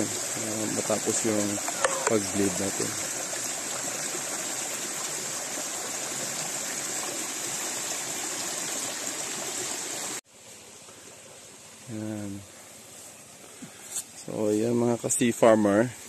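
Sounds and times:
water gushing from pipe onto rocks: 0:00.0 - 0:10.2
faint water sound: 0:00.0 - 0:16.0.

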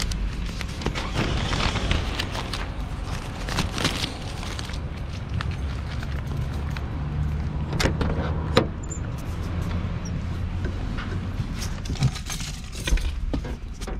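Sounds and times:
low vehicle engine hum: 0:00.0 - 0:13.9.

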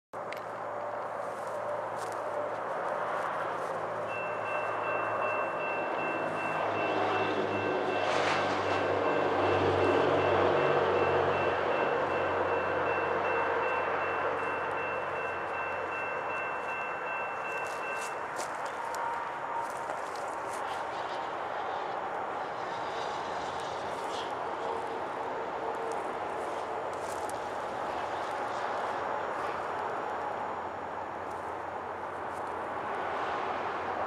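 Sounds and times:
diesel locomotive rumble: 0:00.6 - 0:34.0
crossing bell ringing: 0:01.5 - 0:21.0.

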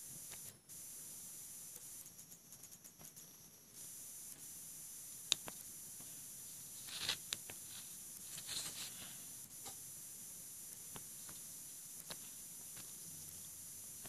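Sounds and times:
faint hiss: 0:00.0 - 0:14.0
fingers rubbing on phone: 0:06.7 - 0:09.2.

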